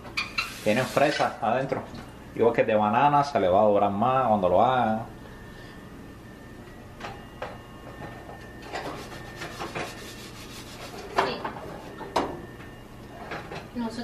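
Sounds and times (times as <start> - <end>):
rubbing scrapes: 8.9 - 11.1.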